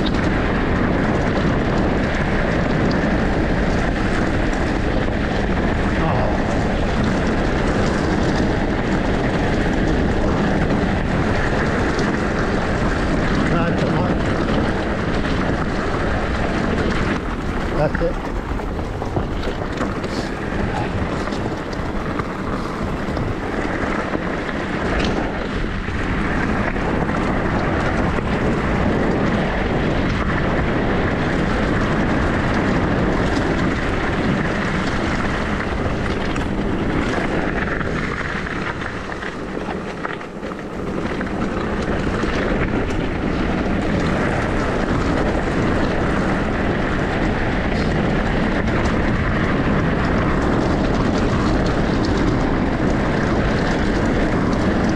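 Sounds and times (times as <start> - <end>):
bike tyre rumble: 0.0 - 54.9
wind on microphone: 0.0 - 54.9
knocks from trail bumps: 6.4 - 29.1.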